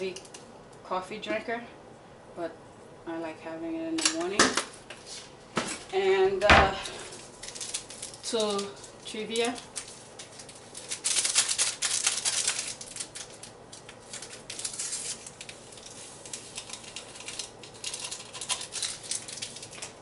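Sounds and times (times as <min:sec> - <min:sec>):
paper packets crinkling and tearing: 0:06.8 - 0:20.0.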